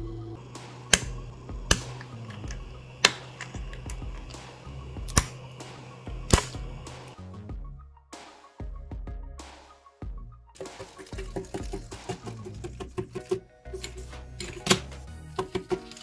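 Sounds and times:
steady low hum: 0:00.0 - 0:07.2
plastic snaps and clicks: 0:00.8 - 0:04.4, 0:05.1 - 0:05.4, 0:06.3 - 0:06.6, 0:14.4 - 0:16.0.

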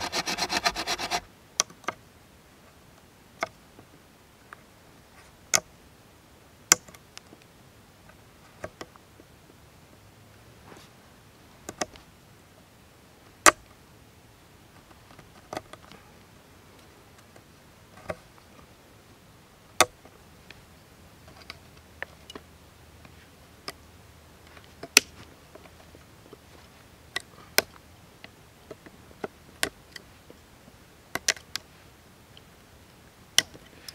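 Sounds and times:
knife cutting into wood: 0:00.0 - 0:01.2.

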